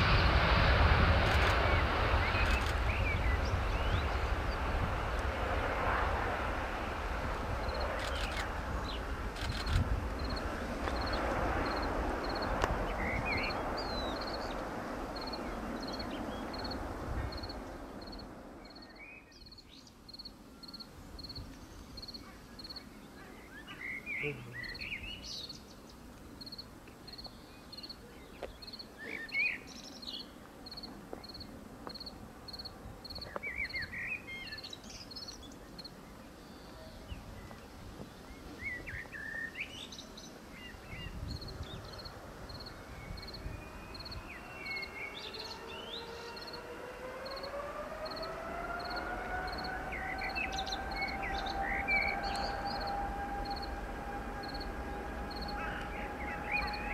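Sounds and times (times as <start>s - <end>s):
jet engines whining: 0.0s - 19.0s, 42.0s - 56.9s
birds singing: 1.3s - 4.7s, 11.0s - 31.4s, 33.1s - 48.2s, 48.8s - 56.9s.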